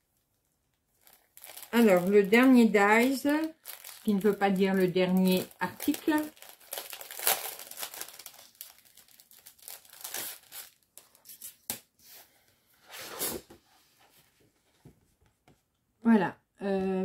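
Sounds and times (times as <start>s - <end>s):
packaging rustling and crinkling: 0.9s - 11.7s
packaging tearing: 1.0s - 11.6s.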